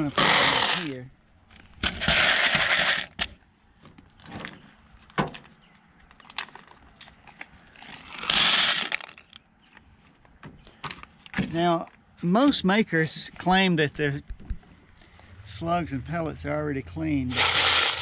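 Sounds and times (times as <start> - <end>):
metal pellets clattering in plastic bowl: 0.0 - 1.0, 2.0 - 3.1, 8.2 - 9.2, 17.3 - 18.0.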